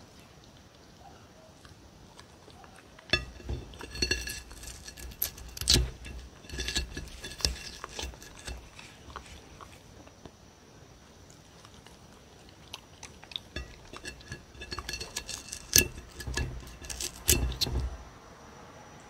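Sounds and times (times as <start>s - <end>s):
ceramic plate clinking on table: 3.2s - 8.6s, 13.6s - 18.0s.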